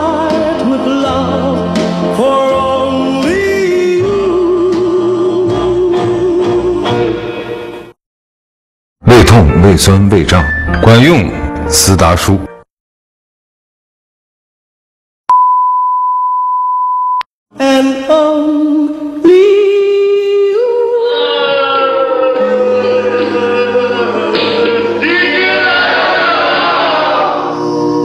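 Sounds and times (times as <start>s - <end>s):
backing music: 0.0s - 7.9s, 22.1s - 28.0s
high beep tone: 15.3s - 17.3s.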